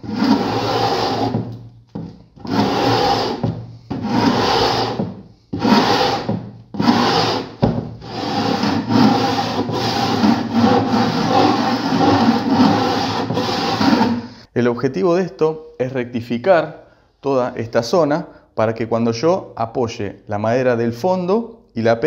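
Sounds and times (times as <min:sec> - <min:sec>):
sandpaper rubbing on wood: 0:00.0 - 0:01.4, 0:02.5 - 0:03.4, 0:04.0 - 0:05.0, 0:05.6 - 0:14.4.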